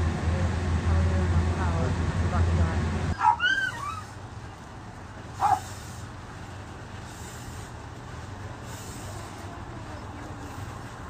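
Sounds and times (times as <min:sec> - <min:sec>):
low engine hum: 0:00.0 - 0:11.0
dog yelping and barking: 0:03.2 - 0:04.2, 0:05.4 - 0:05.6.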